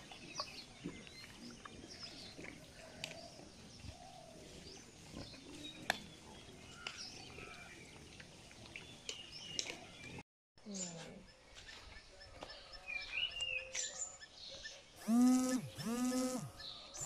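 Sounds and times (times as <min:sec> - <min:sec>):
sharp clicks: 0:15.0 - 0:16.6.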